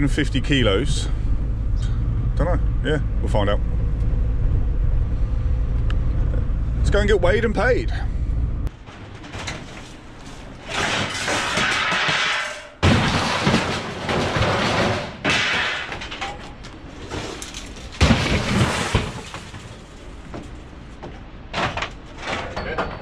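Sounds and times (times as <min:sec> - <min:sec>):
scrap metal clattering and crashing: 0:08.7 - 0:23.0.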